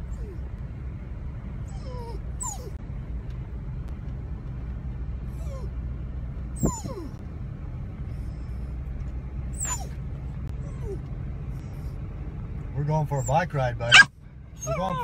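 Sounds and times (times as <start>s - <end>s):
dog whining: 0.0s - 0.4s, 1.6s - 2.8s, 5.4s - 5.8s, 6.6s - 7.2s, 9.6s - 10.0s, 10.6s - 11.1s, 13.2s - 15.0s
car cabin rumble: 0.0s - 15.0s.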